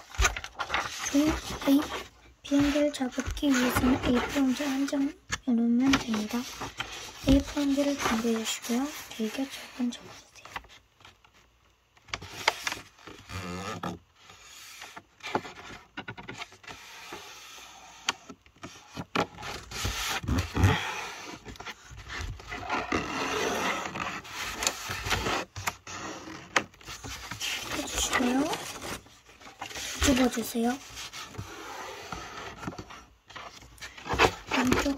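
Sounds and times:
paper being folded and rubbed: 0.0 - 10.4, 19.5 - 34.9.

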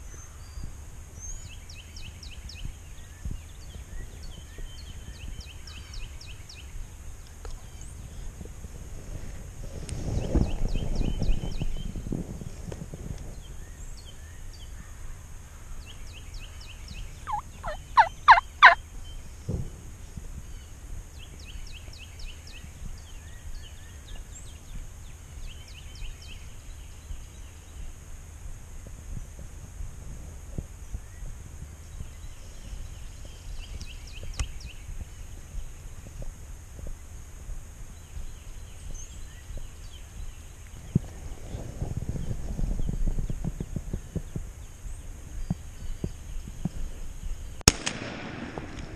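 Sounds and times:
small bird chirps: 16.4 - 18.8
turkey yelping: 17.3 - 18.8.

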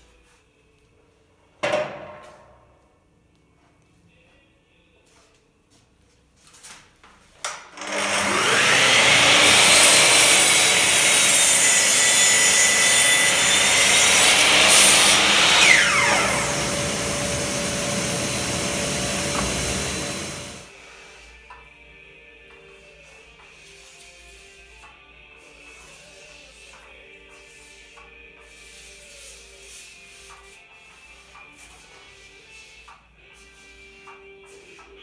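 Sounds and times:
power tool motor whine: 7.8 - 11.1, 11.8 - 20.7.

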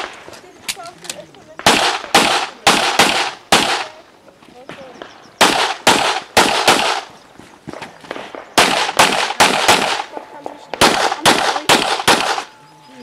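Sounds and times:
pistol shots: 1.6 - 4.0, 4.7 - 7.1, 7.7 - 12.5.

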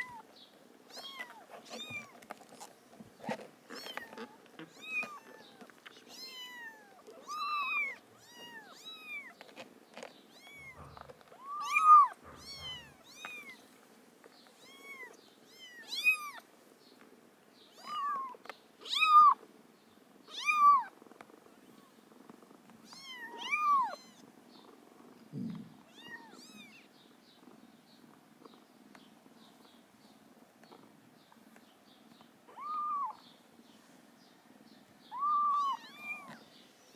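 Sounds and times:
soft continuous purr: 0.0 - 36.9
kittens mewing: 3.2 - 9.3, 10.3 - 13.6, 22.8 - 24.2, 25.3 - 26.9, 32.5 - 33.2, 35.1 - 36.4.

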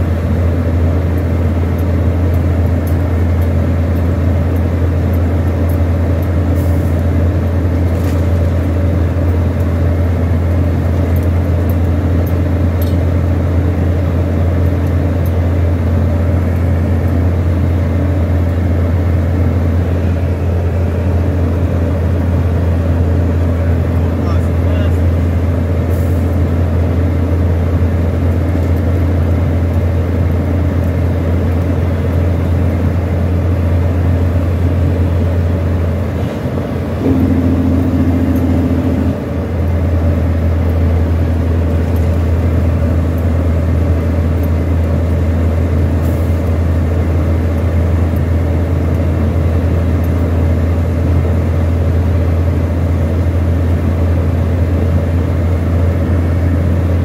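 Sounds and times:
road noise: 0.0 - 57.0
truck engine drone: 0.0 - 57.0
higher steady tone: 36.9 - 39.6.

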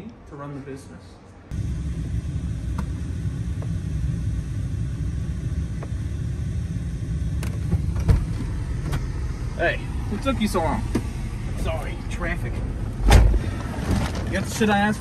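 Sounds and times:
car engine idling: 1.5 - 15.0
heavy thump: 12.6 - 14.3.

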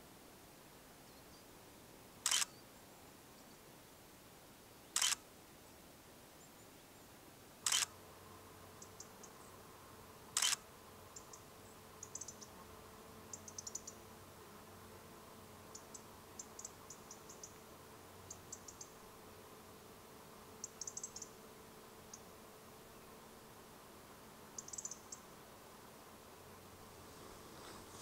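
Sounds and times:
camera shutter clicking: 2.2 - 2.5, 5.0 - 5.2, 7.7 - 7.9, 10.4 - 10.6
faint high ticks: 2.2 - 2.6, 5.0 - 5.2, 7.6 - 8.0, 10.3 - 10.6, 15.8 - 18.9.

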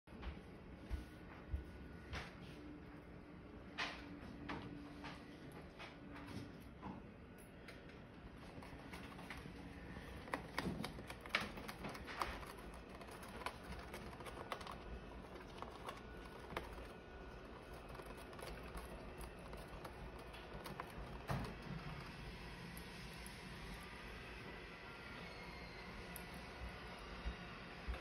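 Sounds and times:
bird pecking paper box: 8.3 - 22.6.

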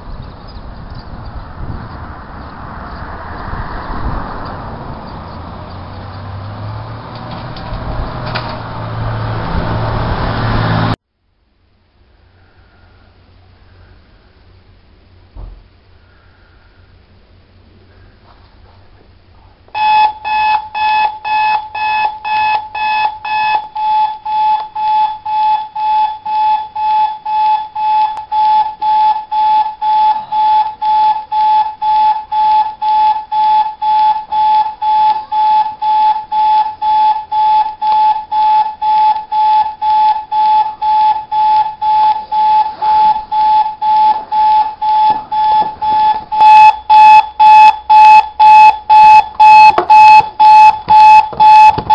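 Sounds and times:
digital alarm clock beeping: 19.8 - 51.9.

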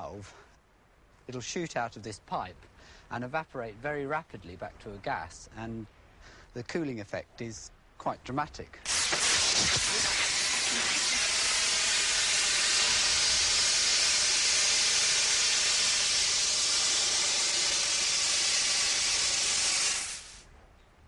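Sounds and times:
gas hissing from valve: 8.8 - 20.4.

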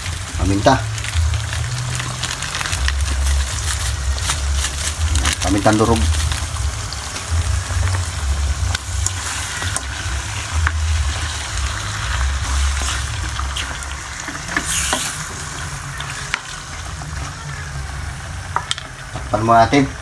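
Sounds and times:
squid sizzling in a wok: 0.0 - 20.0
low rumble: 0.1 - 14.3.

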